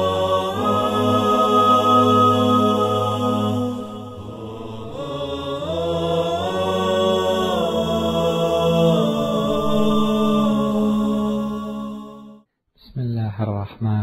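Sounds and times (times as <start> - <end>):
low drone: 0.0 - 12.4
wordless vocal chant: 0.0 - 12.5.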